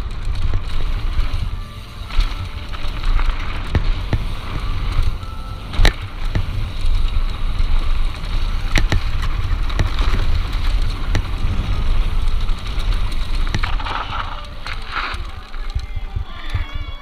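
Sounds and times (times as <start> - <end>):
bike rattling over bumps: 0.0 - 17.0
bike tyre noise: 0.0 - 17.0.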